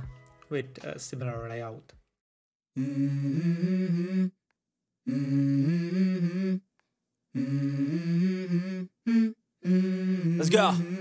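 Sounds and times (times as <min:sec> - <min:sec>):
hummed vocal melody: 0:02.8 - 0:04.4, 0:05.0 - 0:06.7, 0:07.3 - 0:11.0.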